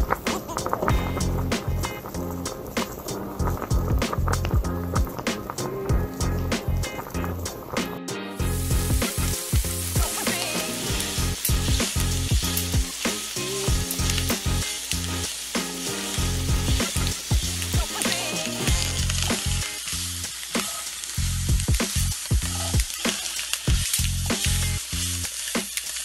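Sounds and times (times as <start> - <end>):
rice sizzling in a pan: 0.0 - 26.0
spatula scraping a pan: 22.2 - 25.8.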